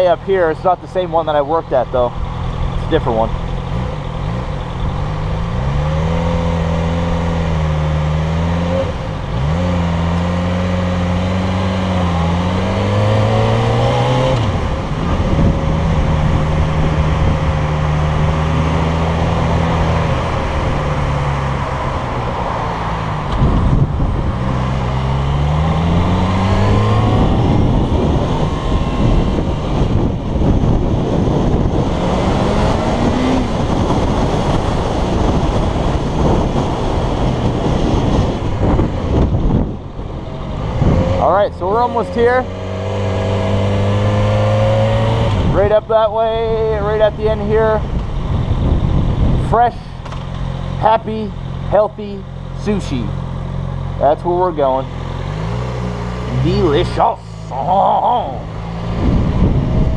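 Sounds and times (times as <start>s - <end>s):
motorcycle engine accelerating: 0.0s - 59.9s
wind noise on microphone: 11.4s - 22.2s, 23.0s - 50.4s, 58.4s - 59.9s.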